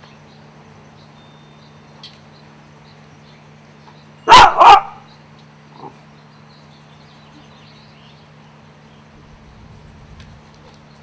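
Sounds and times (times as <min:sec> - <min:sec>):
dog barking: 0:04.3 - 0:05.0
low hum: 0:05.0 - 0:11.0.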